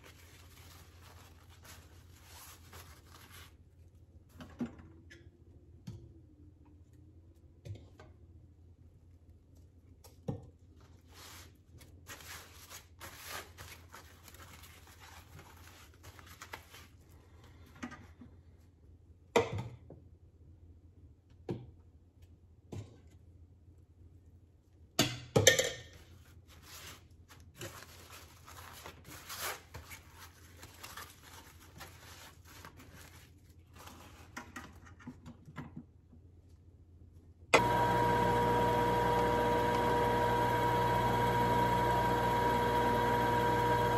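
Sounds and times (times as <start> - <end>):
juicer motor hum: 37.6 - 43.9.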